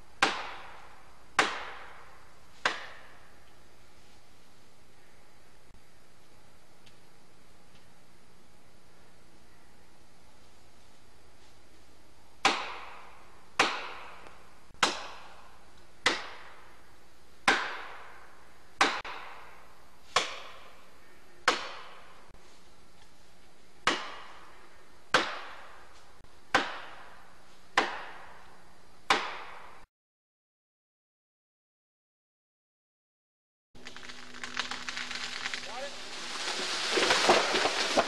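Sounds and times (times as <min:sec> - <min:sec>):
hammer striking metal wedge: 0:13.6 - 0:14.1.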